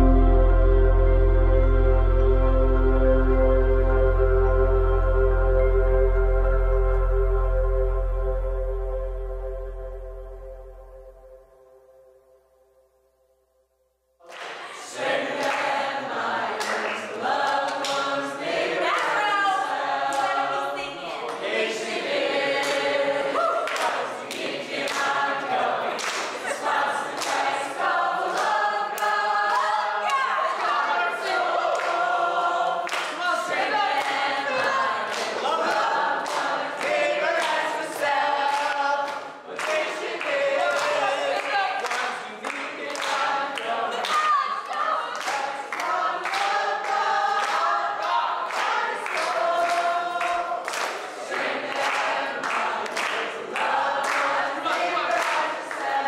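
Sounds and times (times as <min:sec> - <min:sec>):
group singing without instruments: 0:14.2 - 0:56.0.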